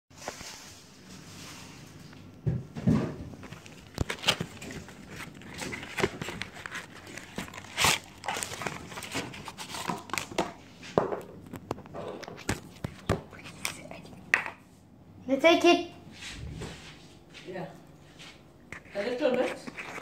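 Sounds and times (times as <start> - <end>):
cardboard carton rustling: 3.3 - 10.5.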